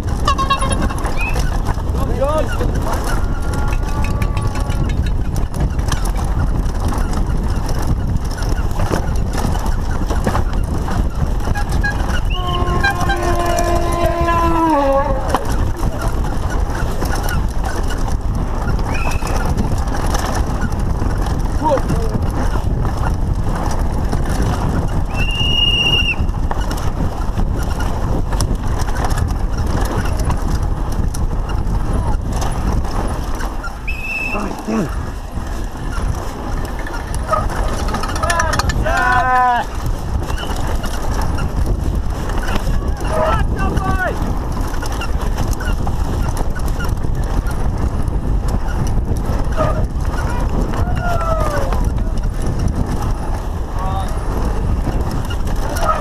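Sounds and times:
clicks and knocks from bike: 0:00.0 - 0:56.0
mountain bike rattling on dirt trail: 0:00.0 - 0:56.0
wind rushing over microphone: 0:00.0 - 0:56.0
high steady whistle tone: 0:25.2 - 0:26.2, 0:33.8 - 0:34.4.

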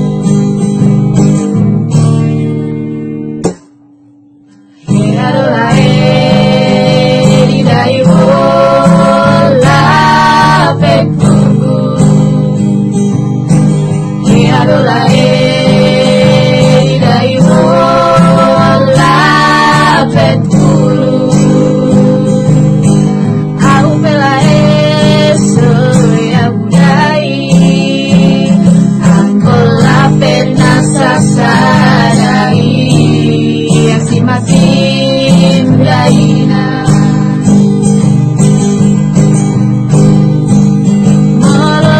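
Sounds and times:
acoustic guitar chords: 0:00.0 - 0:41.9
women singing together: 0:04.8 - 0:12.7, 0:14.2 - 0:22.9, 0:23.6 - 0:37.7, 0:41.4 - 0:41.9.

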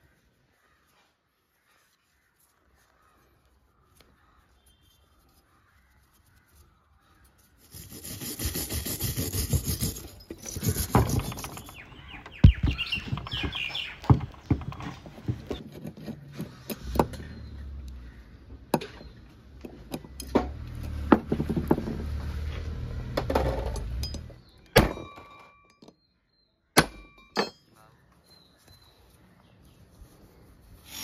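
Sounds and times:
wire brush scrubbing: 0:05.2 - 0:11.8, 0:30.0 - 0:31.0.

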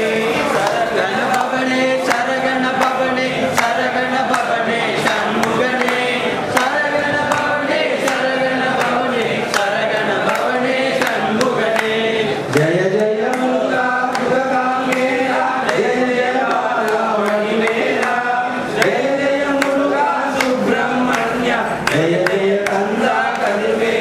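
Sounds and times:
men singing together: 0:00.0 - 0:24.0.

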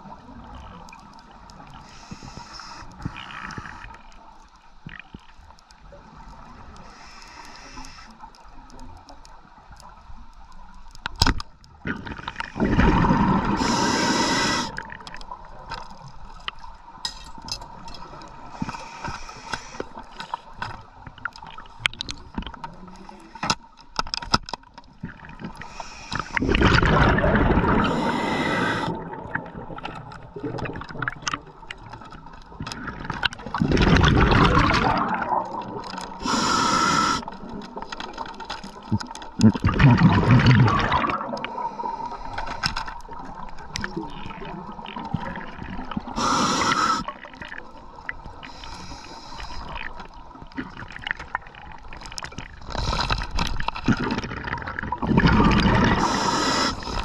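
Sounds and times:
crackle of underwater clicks: 0:00.0 - 0:13.3, 0:14.3 - 0:46.1, 0:46.7 - 0:57.0
rushing bubbling water bursts: 0:11.8 - 0:15.0, 0:25.2 - 0:31.5, 0:32.8 - 0:37.6, 0:39.4 - 0:42.3, 0:52.3 - 0:57.0.

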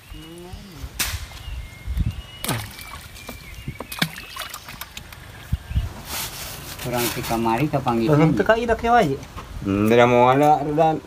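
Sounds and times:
sharp splashes and knocks: 0:02.4 - 0:05.3
water sloshing in plastic bucket: 0:02.4 - 0:05.4.

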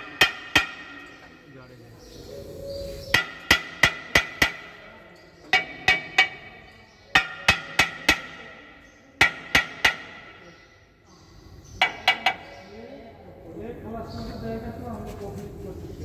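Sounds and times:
hammer striking metal: 0:00.0 - 0:01.4, 0:03.1 - 0:04.9, 0:05.5 - 0:10.5.

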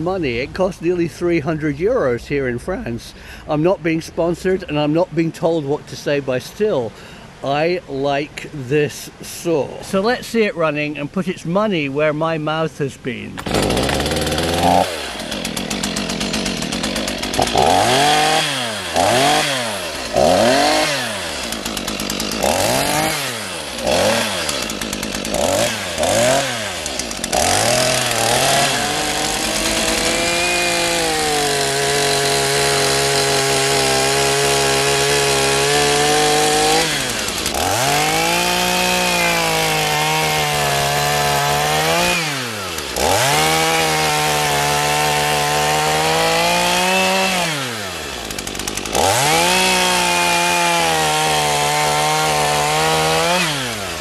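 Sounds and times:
chain cutting into log: 0:13.4 - 0:54.0
chainsaw revving: 0:13.4 - 0:54.0.

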